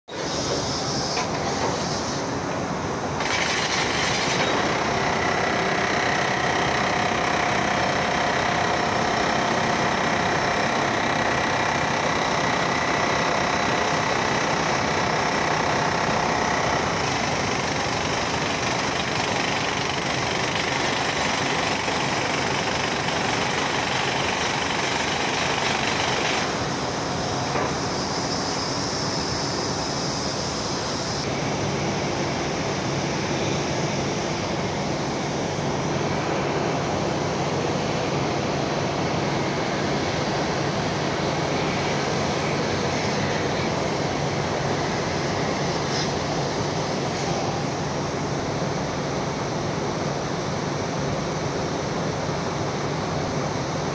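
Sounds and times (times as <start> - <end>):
steady industrial furnace noise: 0.1 - 3.2, 26.4 - 53.9.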